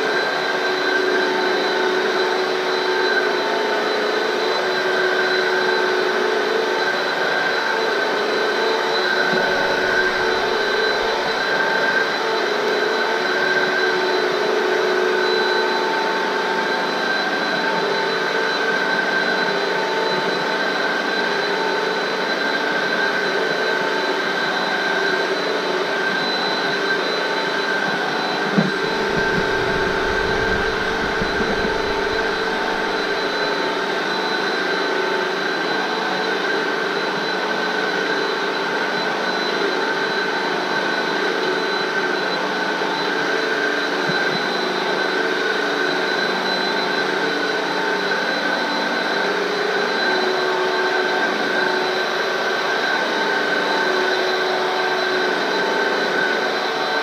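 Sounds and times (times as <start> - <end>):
vacuum cleaner running: 0.0 - 57.0
low rumble: 28.7 - 33.2.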